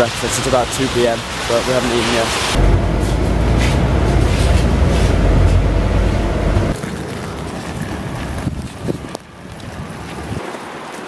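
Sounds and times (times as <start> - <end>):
bus rumbling from inside: 0.0 - 9.1
wind buffeting microphone: 2.5 - 10.4.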